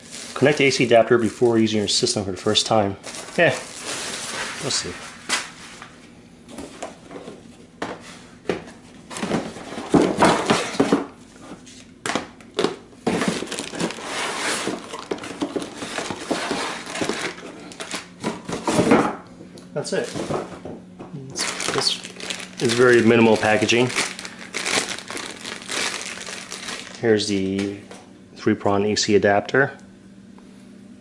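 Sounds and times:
plastic wrap crinkling: 0.0 - 1.7, 2.4 - 5.6, 13.1 - 18.1, 21.4 - 27.6
cardboard rustling: 13.0 - 18.0, 21.4 - 27.0.

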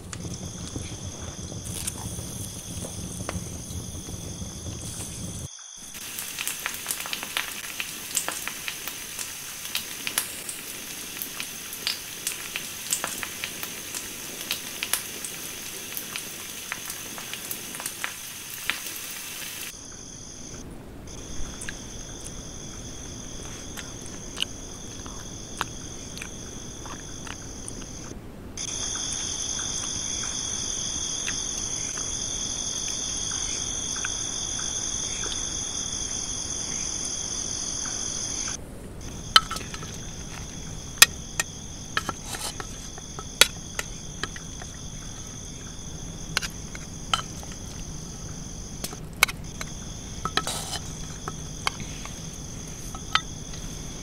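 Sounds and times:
chicken sizzling on a grill: 0.0 - 19.7
campfire crackling and popping: 0.0 - 19.8, 20.5 - 54.0
crickets trilling: 0.0 - 54.0.

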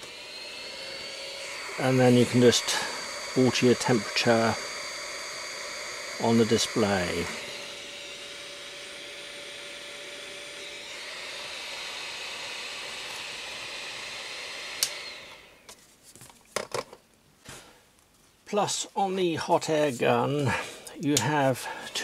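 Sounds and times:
hot air gun blowing: 0.0 - 15.7.

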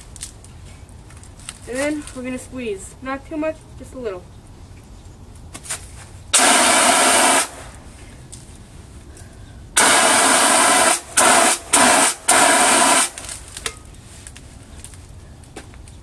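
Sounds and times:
fire extinguisher hissing blasts: 6.3 - 7.8, 9.8 - 13.4.

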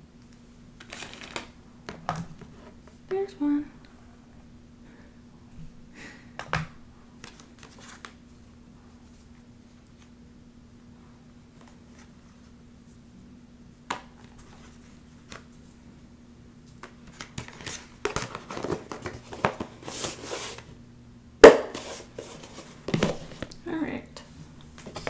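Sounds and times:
faint hum: 0.0 - 25.0
rustling and crinkling handling: 0.8 - 3.2, 7.2 - 10.1, 14.0 - 15.8, 16.6 - 20.8, 21.7 - 23.6.

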